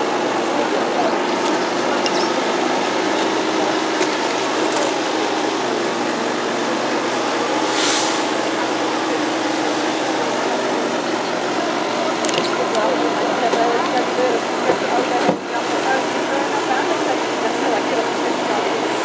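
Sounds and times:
engine idling: 0.0s - 19.0s
short hiss: 7.6s - 8.4s.

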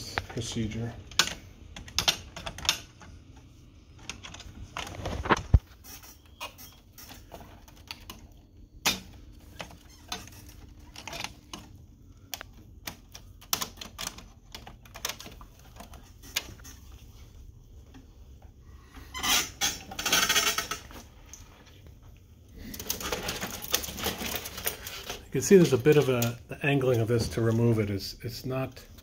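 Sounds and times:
screwdriver tapping printer parts: 1.1s - 5.4s.

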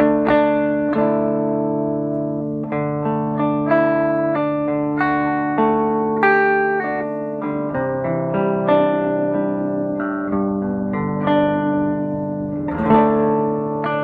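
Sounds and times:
electric guitar notes and chords: 0.0s - 14.0s.

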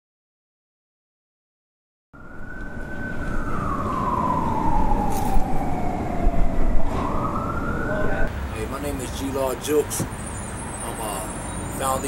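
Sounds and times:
low rumble: 2.2s - 8.3s
siren wailing: 2.2s - 8.3s.

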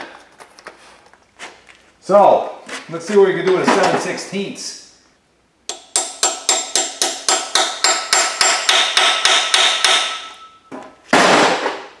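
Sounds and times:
hammer striking metal socket: 5.7s - 10.6s.

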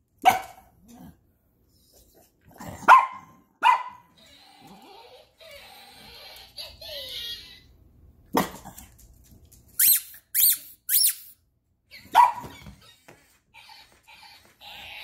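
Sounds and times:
toy dog bark: 2.9s - 7.7s, 11.9s - 13.0s
toy high squeaks: 4.2s - 7.7s, 9.8s - 15.0s.

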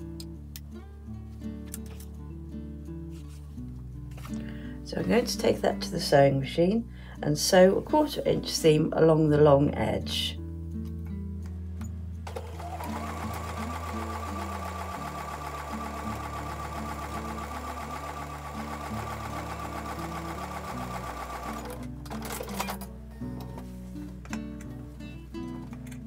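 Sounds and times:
sewing machine stitching: 12.3s - 22.9s.

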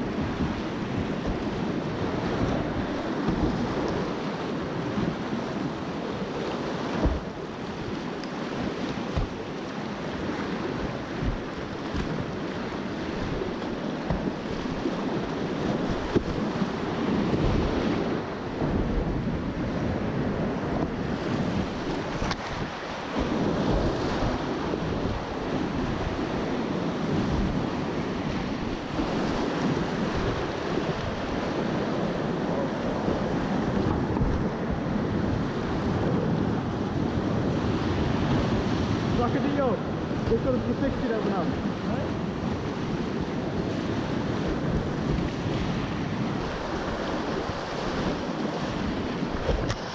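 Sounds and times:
paddle splashes: 0.0s - 18.8s, 19.9s - 26.2s, 37.9s - 49.9s.

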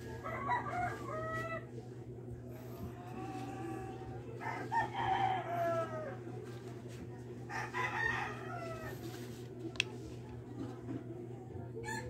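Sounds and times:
rooster crowing: 0.1s - 1.7s, 3.1s - 6.2s, 7.5s - 9.2s.

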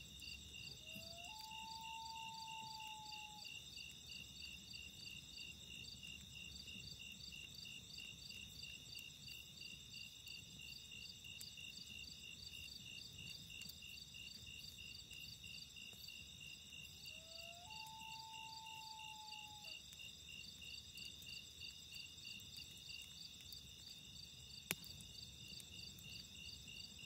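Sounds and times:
crickets chirping: 0.0s - 27.0s
loon wailing: 0.9s - 3.4s, 17.2s - 19.8s
wood fire popping: 22.4s - 27.0s.

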